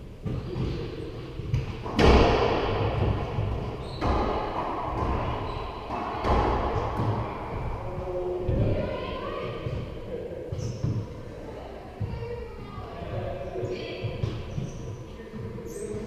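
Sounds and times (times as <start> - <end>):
racquetball cracking off walls: 1.5 - 7.7.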